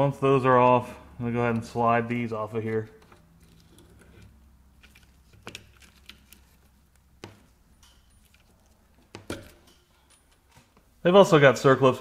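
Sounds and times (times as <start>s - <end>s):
metal chain and sprockets clinking: 7.7s - 10.6s.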